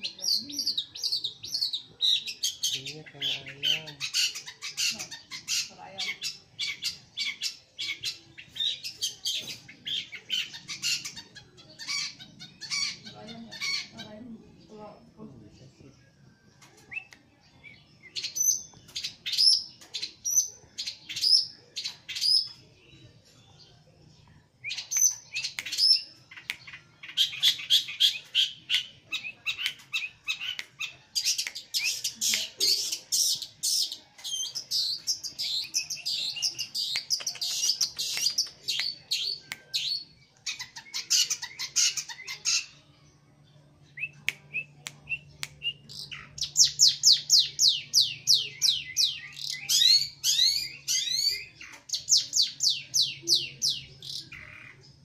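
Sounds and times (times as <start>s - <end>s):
bird singing rapid chattering notes: 0.0s - 15.6s, 16.5s - 55.0s.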